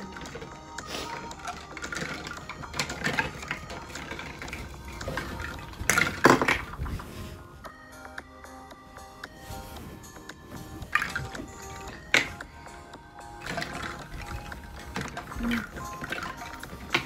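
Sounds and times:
plastic toys clattering: 0:00.0 - 0:07.0, 0:10.8 - 0:12.5, 0:13.2 - 0:17.0.

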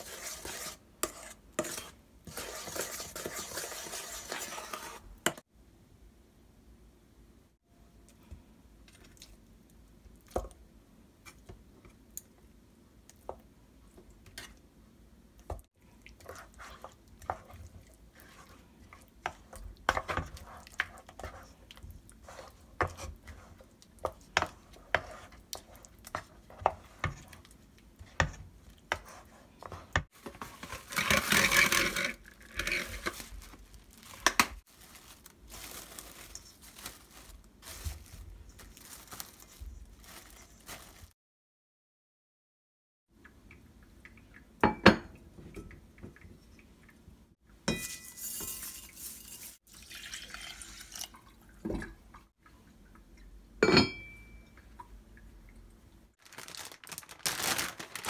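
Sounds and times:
plastic wrap crinkling: 0:30.2 - 0:41.2, 0:56.2 - 0:58.0.

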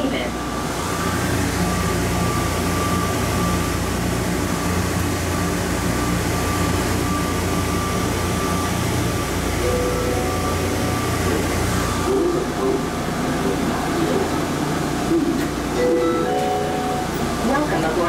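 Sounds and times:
train rumbling in tunnel: 0:00.0 - 0:18.0
high whine: 0:06.3 - 0:18.0.

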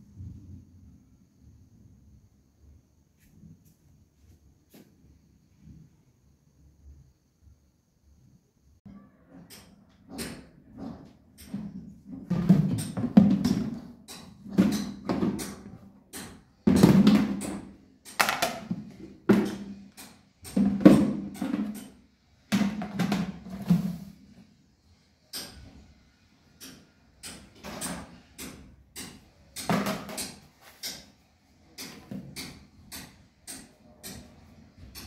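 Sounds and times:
plastic canisters clattering: 0:10.8 - 0:15.4, 0:18.2 - 0:19.7, 0:22.6 - 0:24.2.

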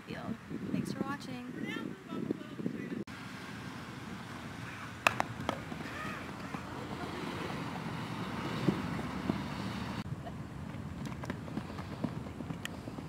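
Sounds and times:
wind on microphone: 0:00.0 - 0:03.1
ball knocking on bat: 0:05.0 - 0:05.8.

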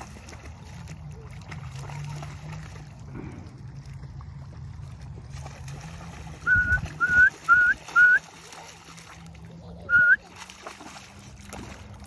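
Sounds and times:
light water noise: 0:00.0 - 0:12.0
person whistling short notes: 0:06.5 - 0:08.2, 0:09.9 - 0:10.2.

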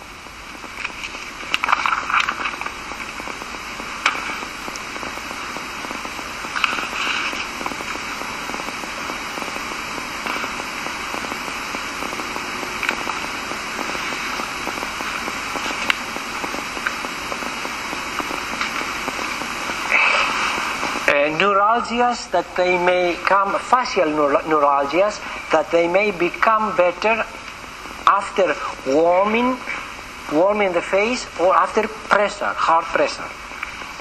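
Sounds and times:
sharp clicks and crackles: 0:00.0 - 0:21.2
recording hiss: 0:00.0 - 0:34.0.

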